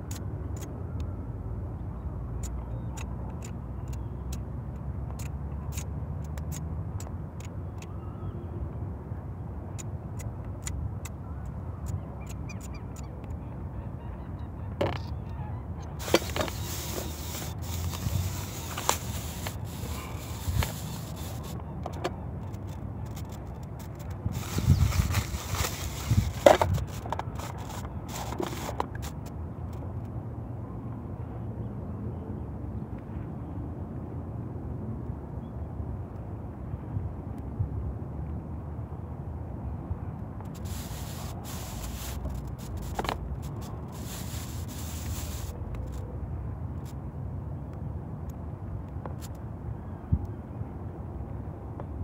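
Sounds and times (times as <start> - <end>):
wind rumble on microphone: 0.0 - 52.0
plastic and paper crinkling: 16.0 - 21.6, 23.1 - 29.1.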